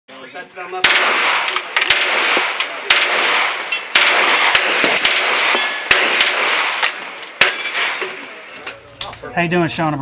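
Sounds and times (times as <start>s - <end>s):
pistol shots echoing: 0.8s - 8.5s.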